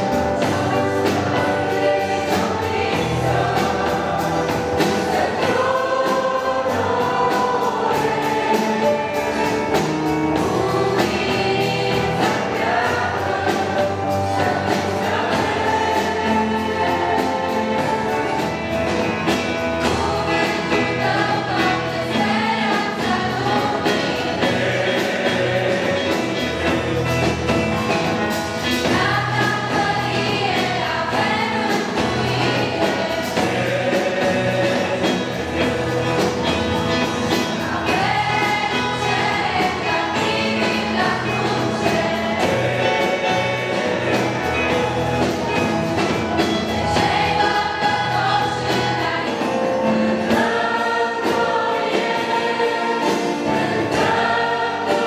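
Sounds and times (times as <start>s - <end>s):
choir singing gospel: 0.0s - 55.0s
drum kit: 0.0s - 55.0s
keyboard: 0.0s - 55.0s.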